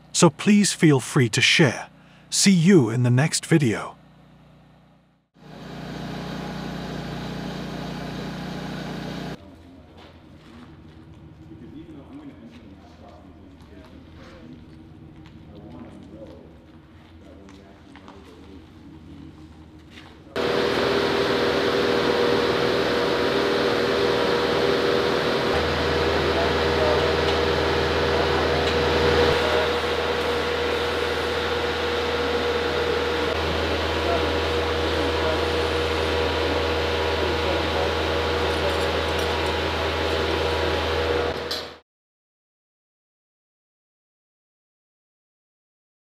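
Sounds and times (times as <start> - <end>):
loud mechanical whir with hum: 20.4 - 41.8.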